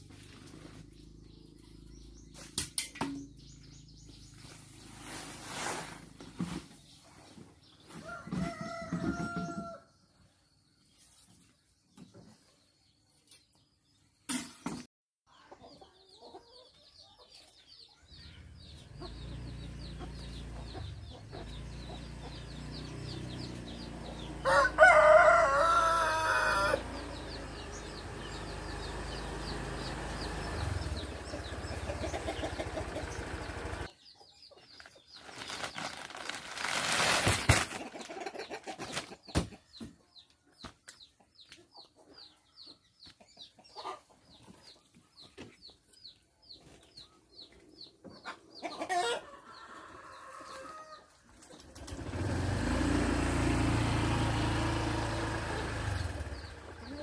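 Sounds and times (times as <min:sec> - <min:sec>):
rooster crowing: 0:08.0 - 0:09.9, 0:24.4 - 0:27.2, 0:49.0 - 0:51.1.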